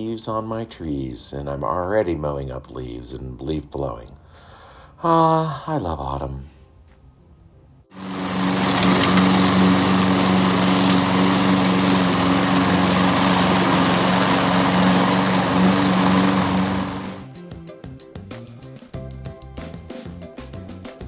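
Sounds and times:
lawn mower engine running: 8.0s - 17.2s.

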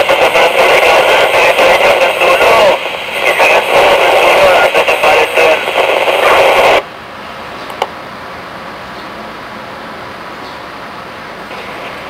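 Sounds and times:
scanner radio warbling tones: 0.0s - 6.8s.

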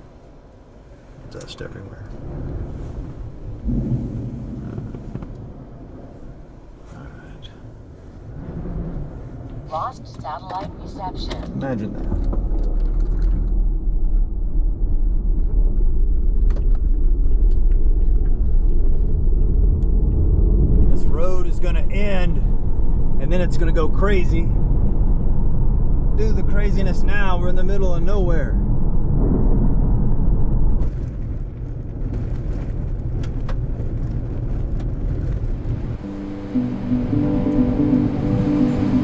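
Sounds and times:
vehicle driving rumble: 0.0s - 39.0s
strong wind rushing: 1.9s - 10.1s, 13.4s - 39.0s
car cabin rumble: 9.0s - 14.4s.

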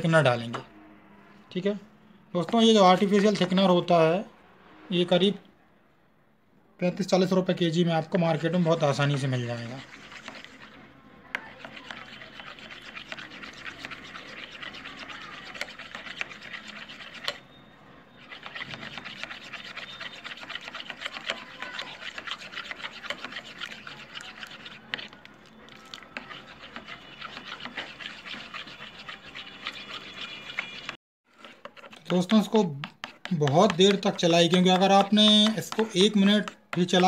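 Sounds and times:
plastic spoon scraping a bowl: 2.5s - 3.7s, 8.1s - 17.5s, 18.2s - 37.0s.

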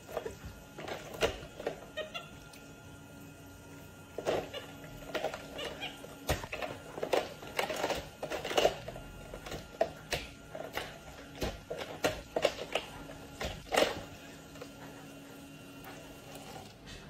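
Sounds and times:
plastic toy dishes clattering: 4.2s - 14.1s.

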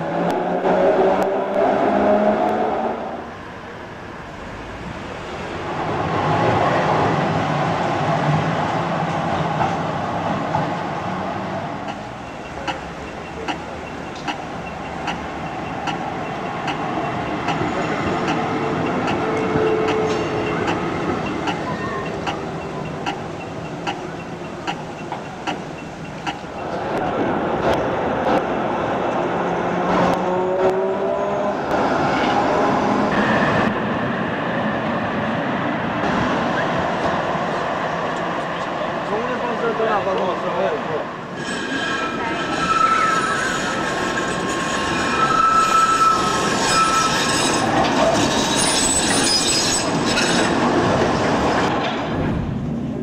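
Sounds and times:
tram motor hum: 4.1s - 39.0s
regular sharp clicks: 11.8s - 16.8s, 19.9s - 27.0s.

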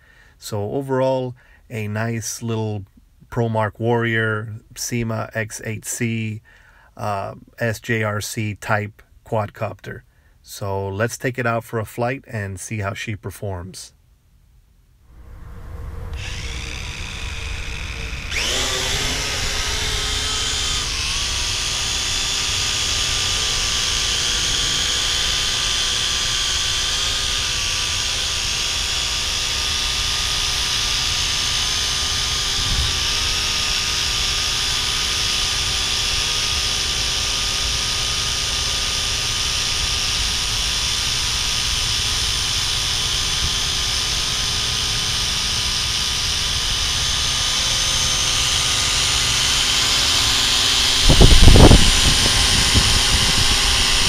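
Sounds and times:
drone propellers whining: 15.1s - 54.0s.

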